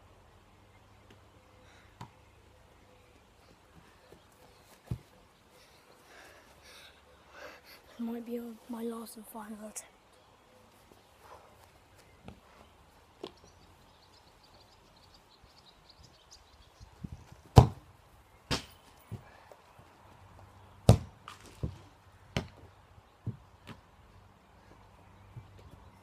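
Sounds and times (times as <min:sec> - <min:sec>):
ball bouncing thuds: 0:17.5 - 0:17.8, 0:20.9 - 0:23.8
football kicked hard: 0:17.5 - 0:17.8, 0:20.9 - 0:22.6.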